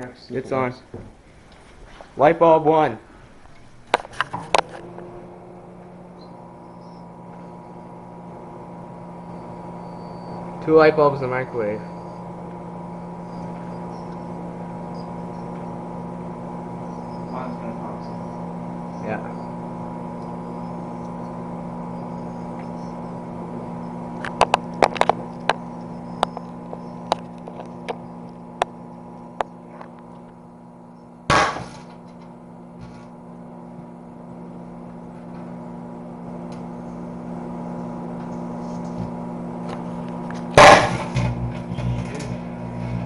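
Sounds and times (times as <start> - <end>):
flames crackling: 0.0 - 9.8, 10.4 - 43.0
microwave oven humming: 0.0 - 43.0
light bulb bursting with bang: 31.3 - 31.9, 40.6 - 41.6
light bulb bursting with pop: 31.3 - 31.9.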